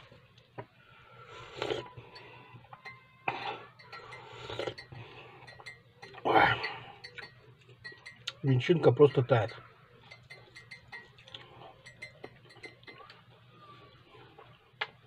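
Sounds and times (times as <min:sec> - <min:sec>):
tea sipping and slurping: 0:01.2 - 0:02.0
mug clinking on table: 0:09.5 - 0:11.2.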